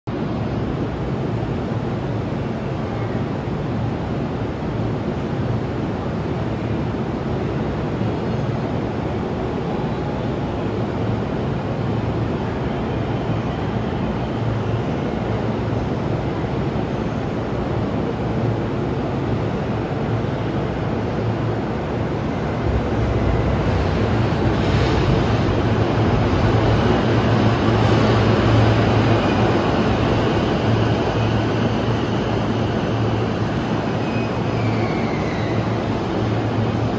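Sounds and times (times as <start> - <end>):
train rumble: 0.1 - 36.9
station hum: 21.0 - 33.8.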